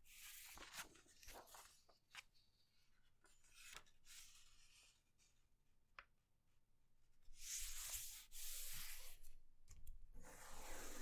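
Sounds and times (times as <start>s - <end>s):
paper rustling and sliding: 0.1s - 2.4s
paper crinkling: 0.4s - 2.3s.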